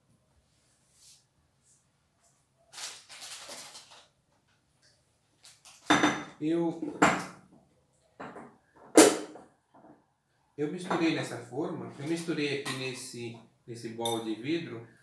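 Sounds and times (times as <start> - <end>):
glass bowl clattering on counter: 5.9 - 6.3.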